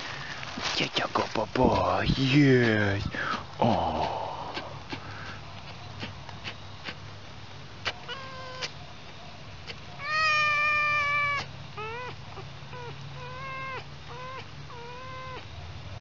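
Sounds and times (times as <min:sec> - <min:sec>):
fox whining: 0:07.8 - 0:08.8, 0:09.6 - 0:15.5.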